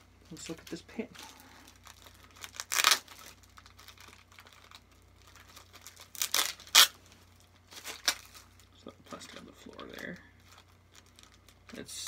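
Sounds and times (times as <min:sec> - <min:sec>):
plastic wrapping crinkling and tearing: 0:00.2 - 0:12.0.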